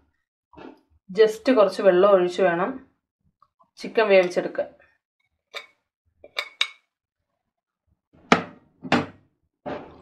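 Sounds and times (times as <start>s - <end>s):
spoon clinking on metal pot: 5.5s - 6.9s.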